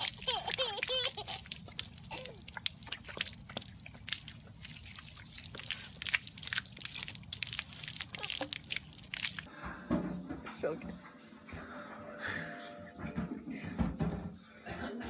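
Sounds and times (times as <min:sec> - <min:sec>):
hose water splashing on concrete: 0:00.0 - 0:09.5.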